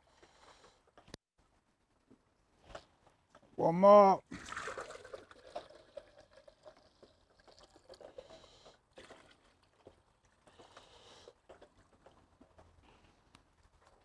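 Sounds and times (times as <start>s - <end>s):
water pouring into a pot: 4.3s - 10.0s.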